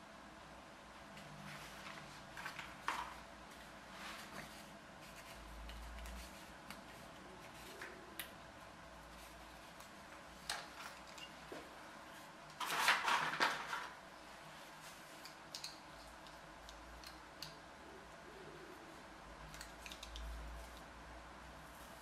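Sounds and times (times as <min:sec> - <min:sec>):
rustling and scraping of parts: 0:01.1 - 0:08.0, 0:09.0 - 0:16.4.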